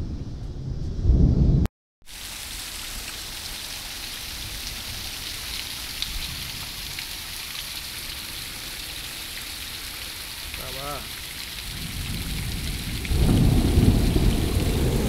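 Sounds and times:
low rumble: 0.0s - 1.7s
heavy rain on pavement and cars: 2.0s - 15.0s.

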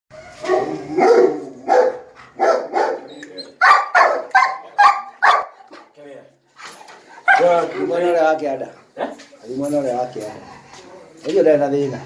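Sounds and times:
dog barking: 0.4s - 5.7s, 7.3s - 7.6s.

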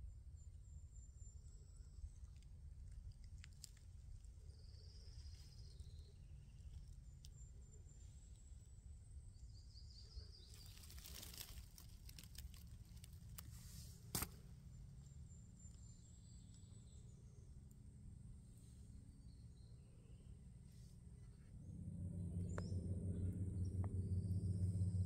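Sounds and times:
low steady rumble: 0.0s - 25.0s
rustle: 10.5s - 14.4s.

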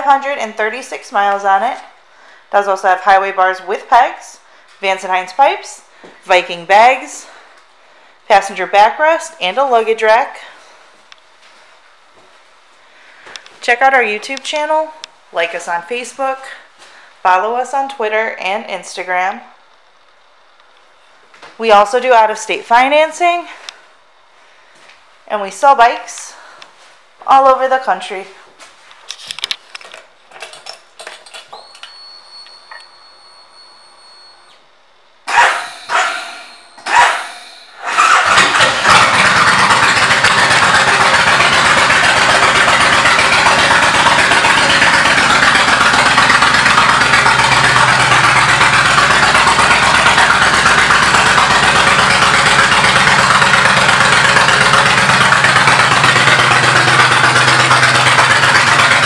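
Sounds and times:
motorcycle engine starting and idling: 35.3s - 59.0s.

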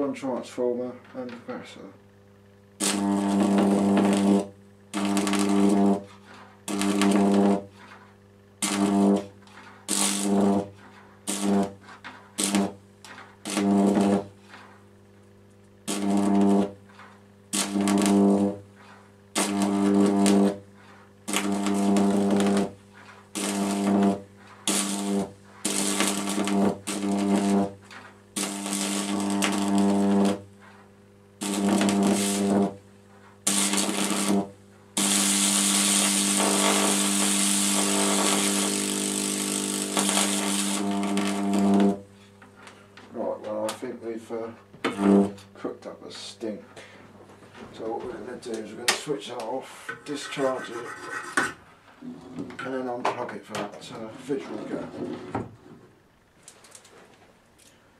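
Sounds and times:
high-voltage arc buzzing: 2.7s - 46.6s.

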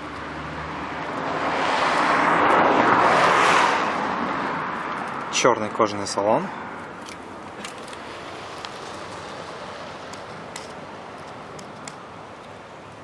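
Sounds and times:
wind hiss: 7.6s - 12.4s.

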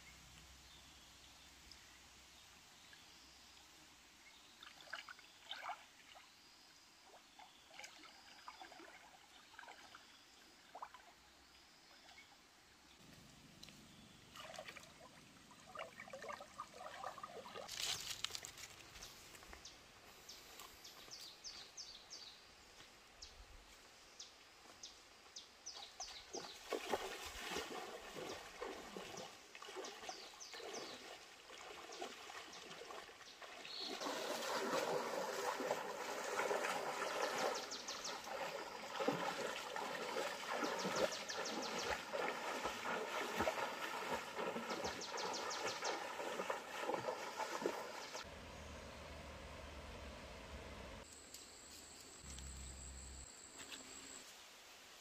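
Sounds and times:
water splashing from wading: 14.3s - 17.7s, 26.3s - 48.3s.

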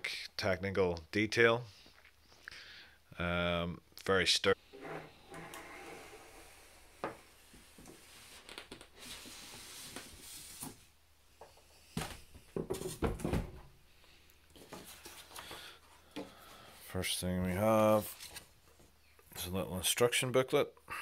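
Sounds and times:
cardboard rustling and scraping: 4.8s - 10.9s, 12.0s - 13.6s.

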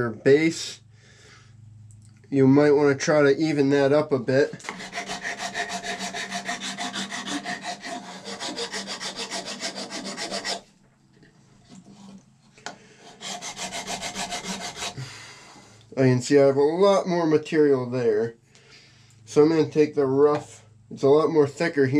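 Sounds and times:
file scraping on horn: 4.6s - 10.7s, 11.7s - 12.2s, 13.0s - 15.1s.

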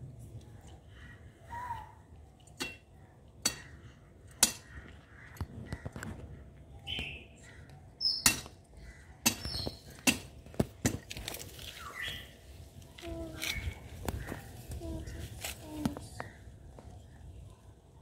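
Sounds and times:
bird chirps: 6.8s - 8.4s, 9.4s - 9.9s, 11.7s - 12.4s.

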